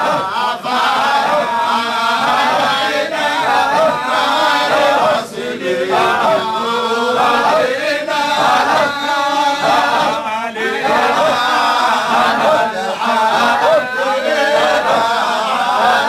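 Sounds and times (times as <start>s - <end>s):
men chanting: 0.0s - 16.0s.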